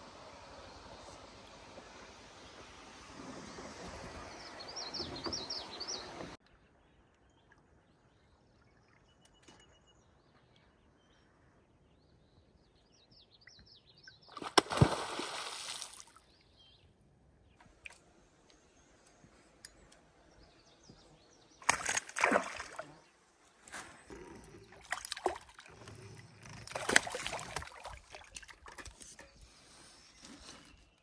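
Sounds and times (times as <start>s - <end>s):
outdoor noise: 0.0s - 31.0s
beaver tail slapping water: 14.3s - 16.2s, 21.6s - 23.0s, 24.6s - 29.2s
water splash: 14.3s - 16.2s, 21.6s - 23.0s, 26.6s - 28.9s.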